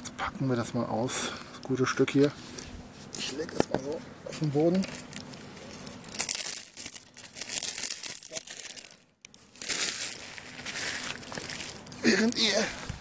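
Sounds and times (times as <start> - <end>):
plastic wrap crinkling and tearing: 4.6 - 13.0.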